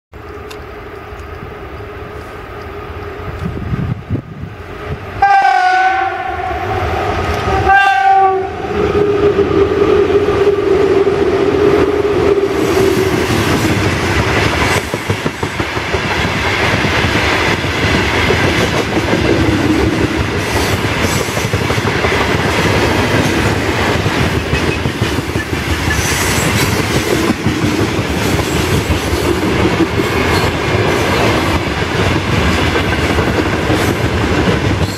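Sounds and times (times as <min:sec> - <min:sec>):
train wagons rumbling past: 0:00.2 - 0:34.9
locomotive horn blasts: 0:05.2 - 0:06.8, 0:07.5 - 0:08.7
wheels clickety-clack on rail joints: 0:12.6 - 0:34.9.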